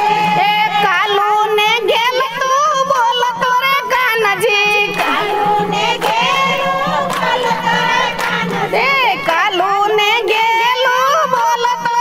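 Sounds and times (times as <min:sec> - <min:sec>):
women singing devotional song: 0:00.0 - 0:12.0
hand clapping in time: 0:04.7 - 0:09.4.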